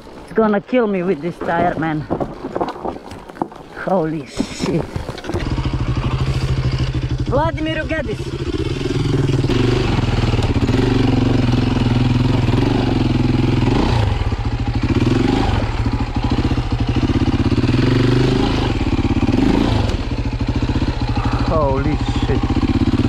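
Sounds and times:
dirt bike engine revving: 0:05.2 - 0:23.0.

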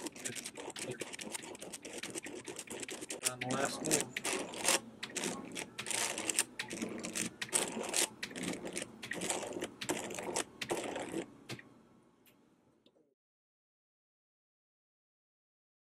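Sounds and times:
stepper motors turning cube layers: 0:00.0 - 0:11.6.

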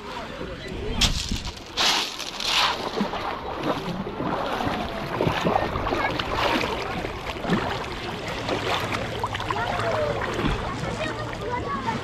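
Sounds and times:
sea water sloshing and lapping: 0:00.0 - 0:12.0
water splashes and drips: 0:01.0 - 0:11.7.

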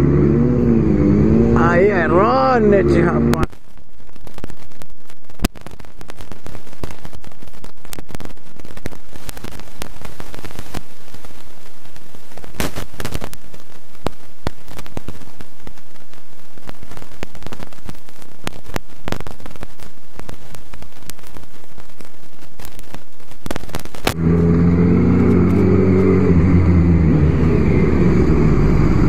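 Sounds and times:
sharp pops: 0:03.2 - 0:24.4.

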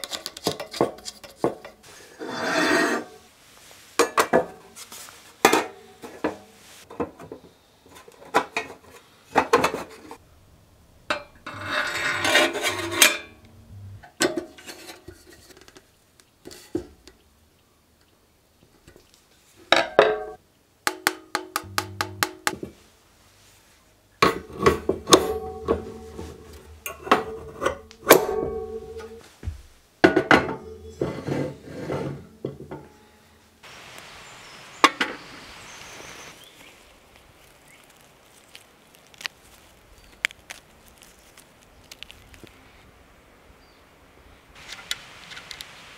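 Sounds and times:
metal parts scraping: 0:11.4 - 0:13.4.

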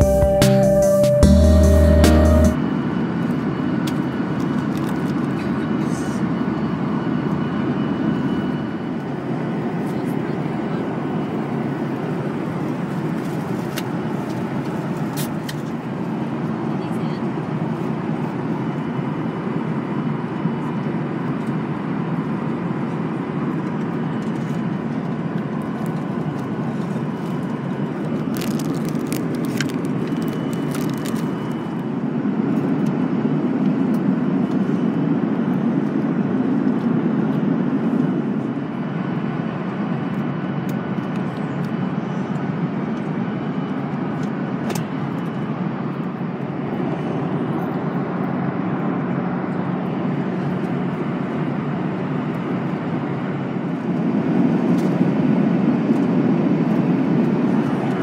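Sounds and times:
airplane cabin engine rush: 0:00.0 - 0:58.0
plastic wrapping crackling: 0:28.2 - 0:31.4.

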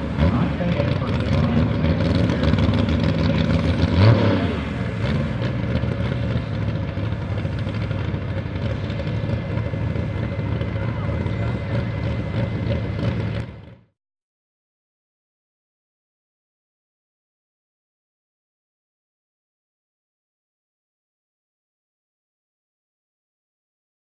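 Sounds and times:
tractor engine idling and revving: 0:00.0 - 0:13.9.

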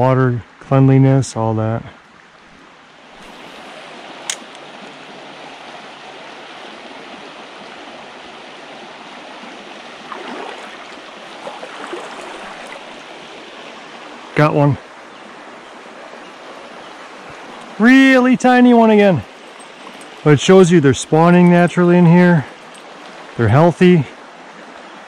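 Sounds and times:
creek water running: 0:00.0 - 0:25.0
sharp click: 0:04.3 - 0:04.6.

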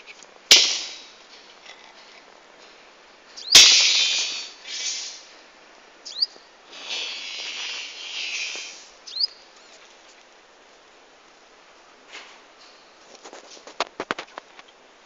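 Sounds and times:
small bird chirping: 0:03.4 - 0:05.1, 0:06.0 - 0:10.2
hissing bursts: 0:03.5 - 0:05.3, 0:06.6 - 0:09.0.

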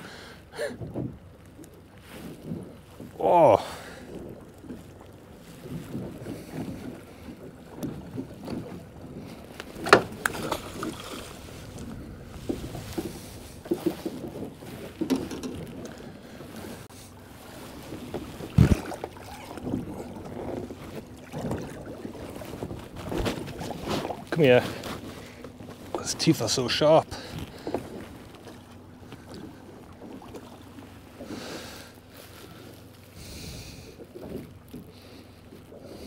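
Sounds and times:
knocks and bumps on a boat: 0:00.6 - 0:36.0
wind noise: 0:04.0 - 0:16.9, 0:17.5 - 0:24.3.

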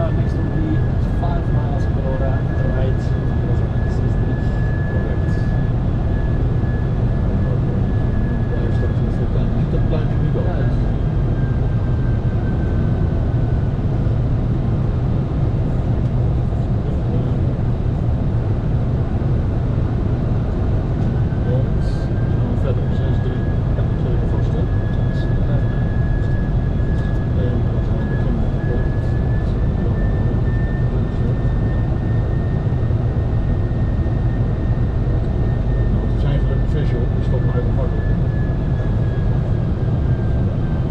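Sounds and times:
cockpit airflow and engine rumble: 0:00.0 - 0:40.9.

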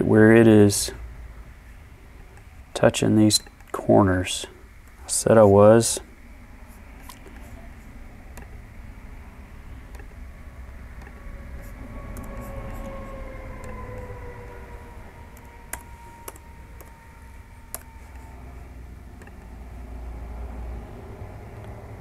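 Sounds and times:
low room hum: 0:00.0 - 0:22.0
computer mouse and keyboard clicks: 0:09.9 - 0:10.1, 0:11.0 - 0:13.0, 0:15.4 - 0:17.0, 0:17.7 - 0:18.3.

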